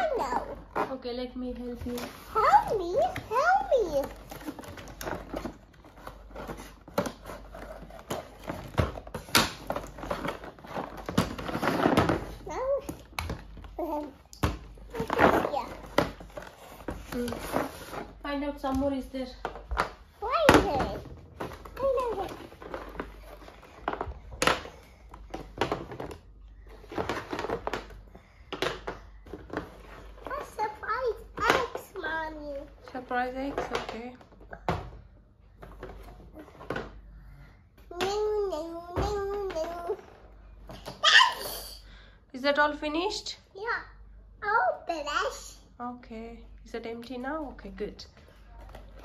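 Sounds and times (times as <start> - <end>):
cardboard and paper rustling: 0.0 - 34.6, 47.6 - 49.0.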